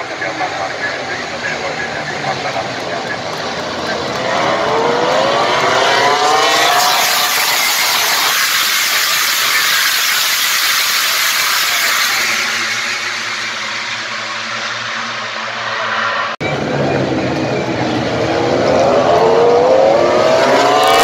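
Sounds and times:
racing motorcycles passing at full throttle: 0.1s - 21.0s.

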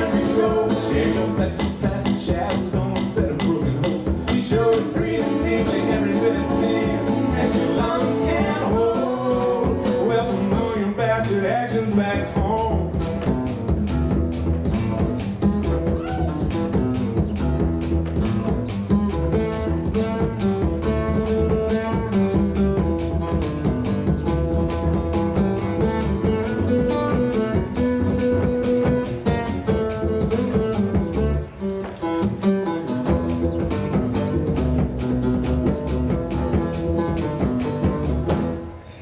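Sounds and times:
bass drum beat: 0.0s - 10.9s, 12.1s - 31.6s, 33.0s - 38.6s
person singing: 0.0s - 11.0s
double bass: 0.0s - 38.9s
acoustic guitar: 0.0s - 39.0s.

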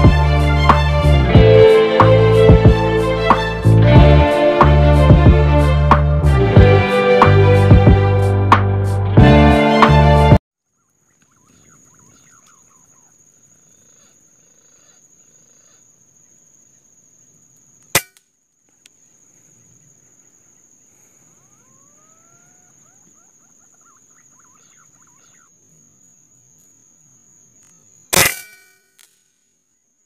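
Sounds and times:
faint bird chirps: 10.6s - 17.9s, 18.6s - 28.2s
rifle shot: 28.1s - 29.2s.

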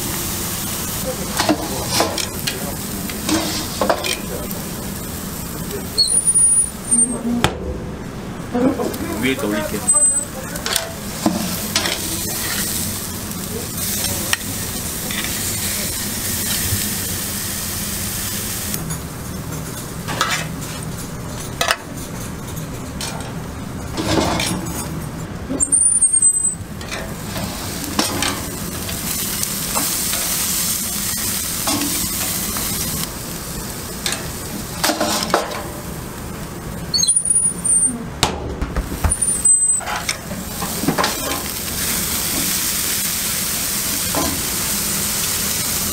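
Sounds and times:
steaks sizzling on a grill: 0.0s - 7.2s, 8.9s - 21.2s, 25.6s - 37.9s, 39.0s - 45.9s
metal grill door knocks: 38.2s - 39.4s.

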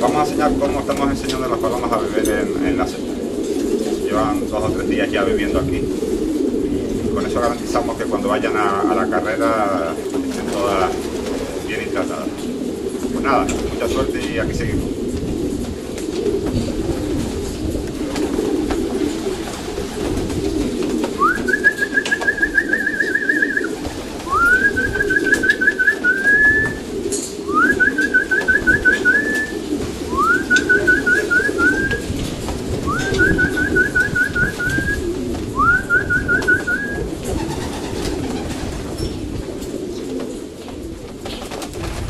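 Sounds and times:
pigeons cooing: 0.0s - 42.0s
bird trilling call: 21.2s - 26.8s, 27.4s - 32.0s, 35.6s - 37.0s.

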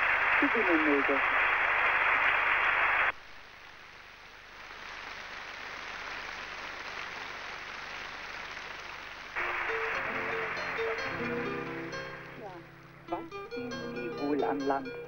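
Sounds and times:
audience applause: 0.0s - 12.4s
music: 9.4s - 15.0s.

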